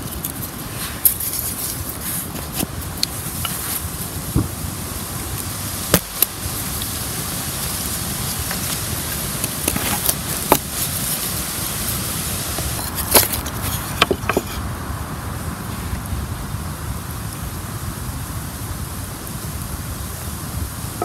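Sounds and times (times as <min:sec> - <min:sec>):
wind rumble on microphone: 0:00.0 - 0:21.0
wooden sticks knocking: 0:13.2 - 0:14.6.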